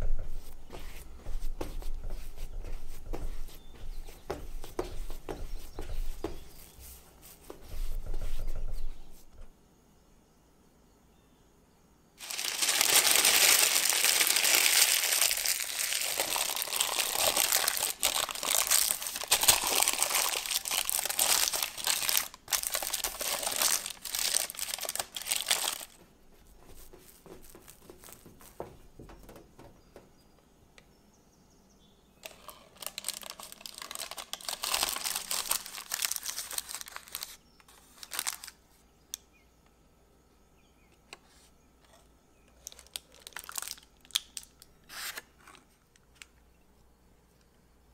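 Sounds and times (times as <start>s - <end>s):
parchment paper crinkling: 12.2s - 29.7s, 32.2s - 38.8s, 42.6s - 46.3s.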